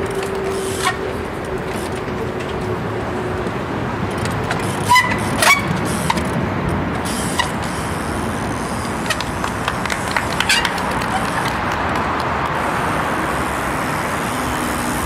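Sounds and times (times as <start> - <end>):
street and tram traffic: 0.0 - 15.0
bike landing knocks and squeaks: 4.8 - 6.2.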